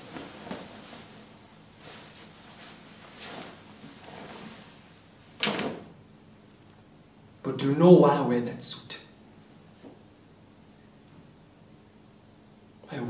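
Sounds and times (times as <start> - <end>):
jacket cloth rustling: 0.0 - 5.9.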